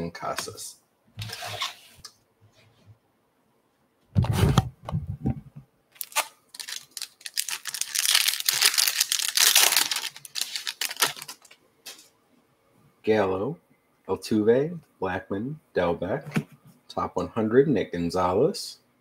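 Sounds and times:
foil wrapper crinkling and tearing: 6.0s - 11.6s.

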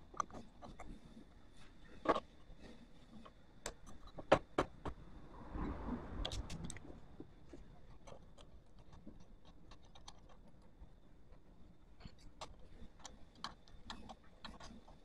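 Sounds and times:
sharp clicks and light knocks: 0.0s - 1.0s, 7.9s - 10.7s, 12.0s - 15.0s
small ticks: 7.9s - 11.0s, 12.0s - 15.0s.

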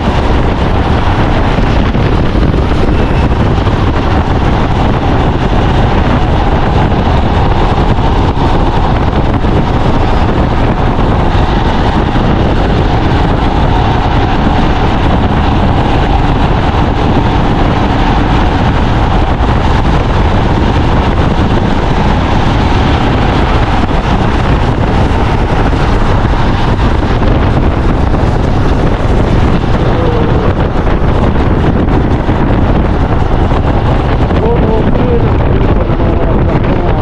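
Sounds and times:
motorcycle engine: 0.0s - 37.0s
road noise: 0.0s - 37.0s
wind buffeting microphone: 0.0s - 37.0s.

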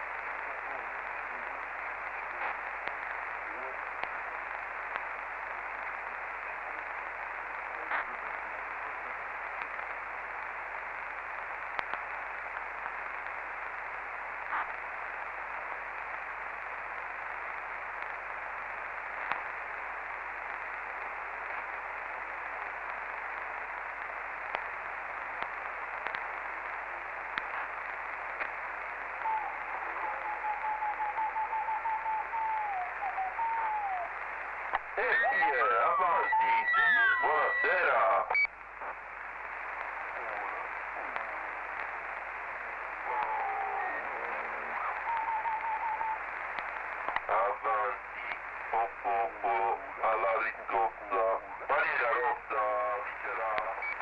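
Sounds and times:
radio static hiss: 0.0s - 54.0s
faint clicks: 2.0s - 3.2s, 11.1s - 13.4s, 17.0s - 18.2s, 19.1s - 19.5s, 22.6s - 29.3s, 34.6s - 34.9s, 38.4s - 43.4s, 44.9s - 47.3s.

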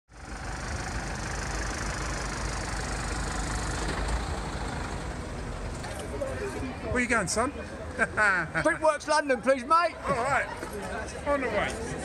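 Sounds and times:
diesel engine idling: 0.1s - 7.9s.

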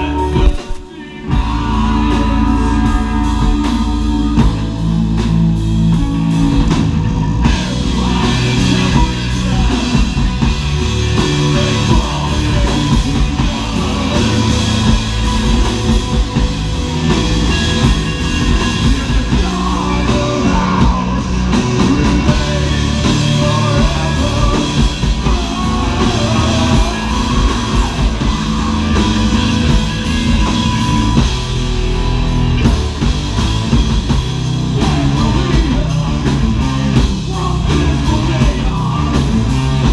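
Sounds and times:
vocalist singing into microphone: 0.0s - 4.8s, 7.4s - 16.5s, 17.6s - 29.8s
bass guitar: 0.0s - 39.9s
drum kit: 0.0s - 39.9s
electric guitars: 0.0s - 39.9s.

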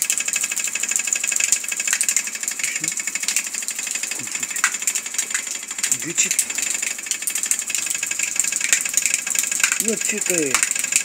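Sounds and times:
rattling buzz: 0.0s - 11.0s
water pouring into a basin: 0.0s - 11.0s.

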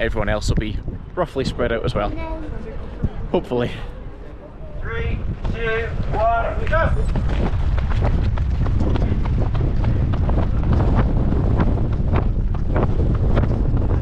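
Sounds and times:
wind buffeting microphone: 0.0s - 14.0s
runners footfalls: 5.3s - 14.0s.

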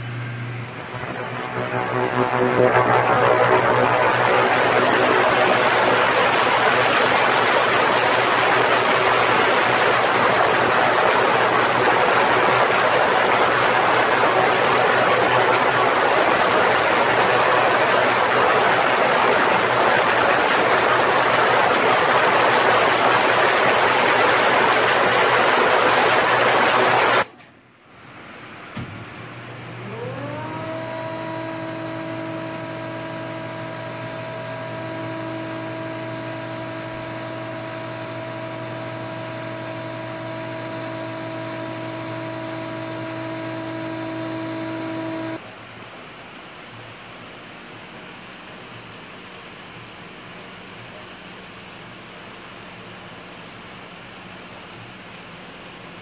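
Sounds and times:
low hum: 0.0s - 27.3s
machine whine: 0.0s - 27.4s, 29.8s - 45.5s
cleaning liquid hissing: 0.8s - 27.3s.

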